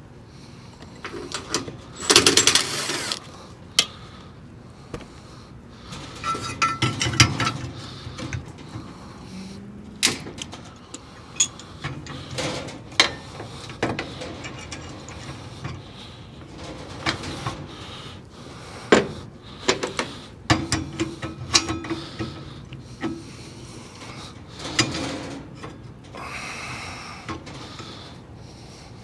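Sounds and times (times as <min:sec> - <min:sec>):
wrench clinking on metal pipe: 0:06.2 - 0:07.3, 0:11.3 - 0:11.7.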